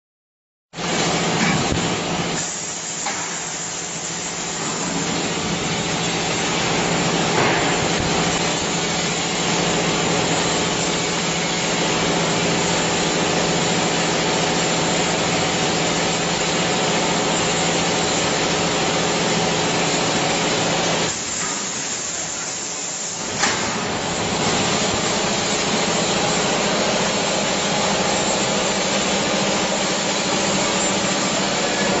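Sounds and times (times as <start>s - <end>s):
machinery hissing: 1.0s - 18.2s, 19.7s - 32.0s.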